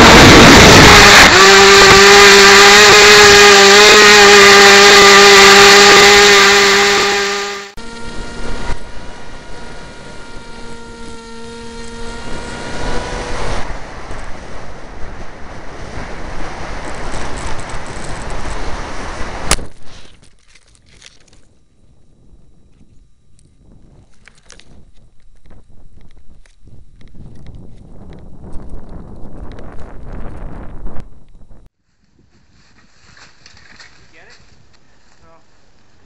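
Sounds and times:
electric motor whining: 0:00.0 - 0:19.6.

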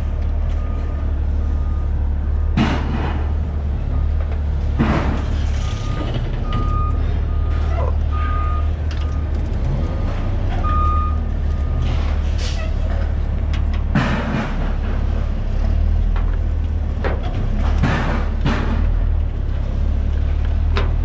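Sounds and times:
diesel engine rumble: 0:00.0 - 0:21.0
reversing alarm beeping: 0:00.3 - 0:02.6, 0:03.5 - 0:09.8, 0:10.6 - 0:12.2.

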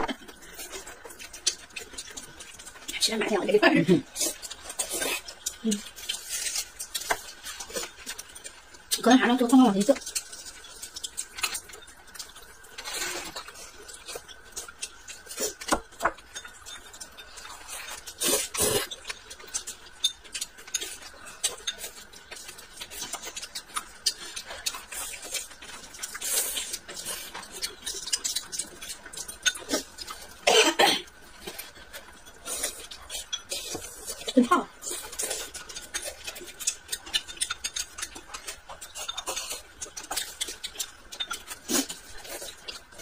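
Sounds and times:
chewing: 0:00.0 - 0:43.0
chopsticks clicking on plates: 0:35.0 - 0:42.8.

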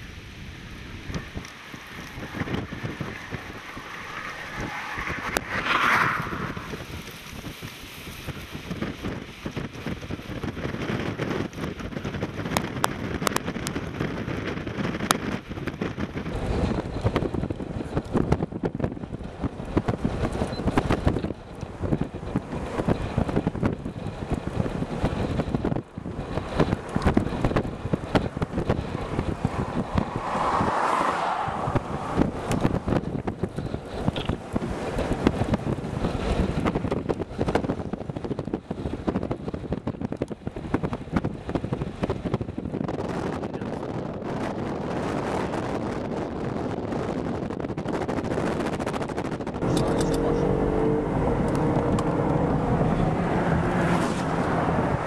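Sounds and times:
wind buffeting microphone: 0:00.0 - 0:55.0
car driving past: 0:01.5 - 0:07.4, 0:28.4 - 0:33.4, 0:49.6 - 0:55.0.

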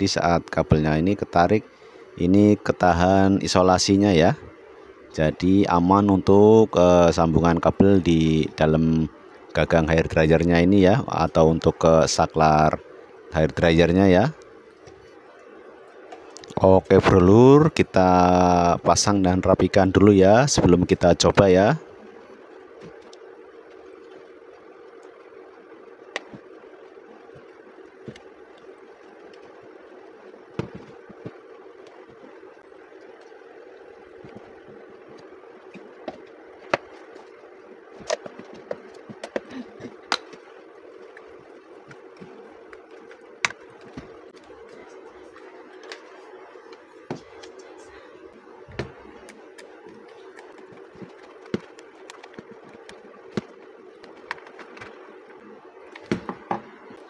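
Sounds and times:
steady background hum: 0:00.0 - 0:57.0.

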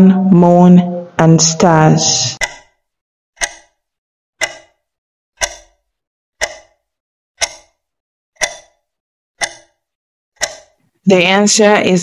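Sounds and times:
timer ticks with ring-out: 0:02.4 - 0:11.8.

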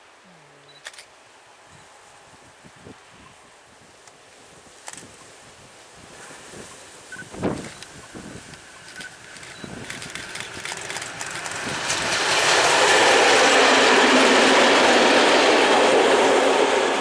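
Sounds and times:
diesel locomotive passing: 0:08.6 - 0:17.0.

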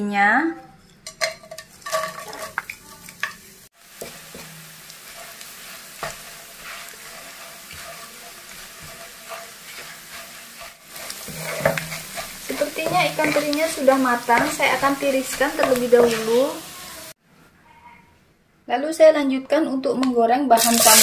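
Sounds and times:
spatula scraping wok: 0:00.7 - 0:17.2, 0:20.6 - 0:21.0
fish sizzling in oil: 0:01.7 - 0:17.2, 0:20.6 - 0:21.0.

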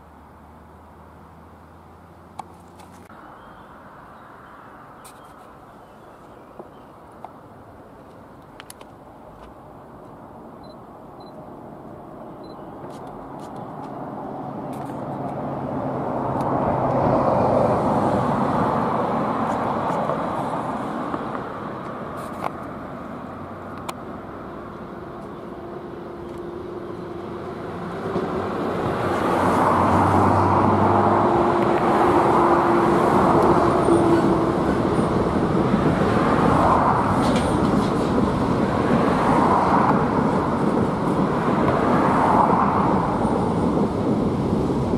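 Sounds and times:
train wheels on rails: 0:24.8 - 0:44.9.

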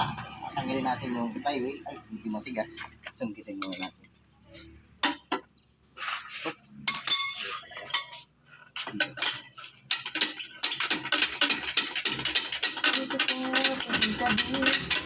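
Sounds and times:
metal tools clinking on engine: 0:02.8 - 0:04.3, 0:06.8 - 0:15.0.

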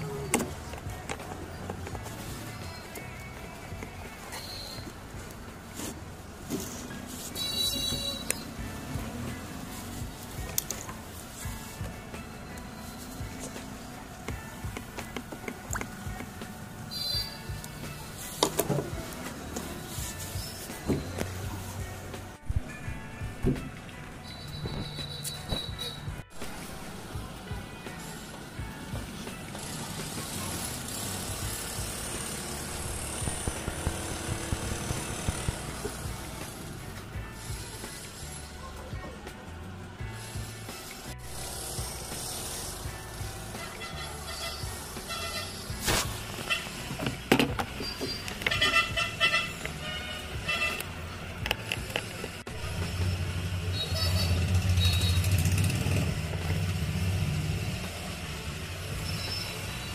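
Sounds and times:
electric pump buzzing and hissing: 0:24.5 - 0:38.6, 0:39.9 - 0:59.9
electric pump humming: 0:28.2 - 0:38.4.

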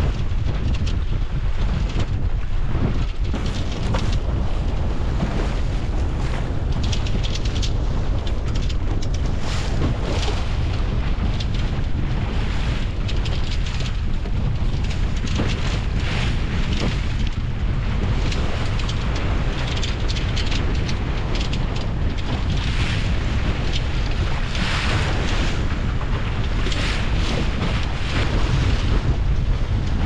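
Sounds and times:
wind buffeting microphone: 0:00.0 - 0:30.0
water and spray rushing: 0:09.0 - 0:30.0.

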